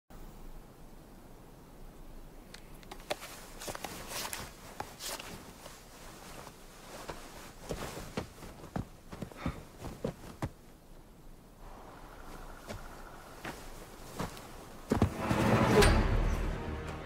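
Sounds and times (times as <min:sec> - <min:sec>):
footsteps on snow: 0:03.1 - 0:10.9, 0:11.6 - 0:17.0.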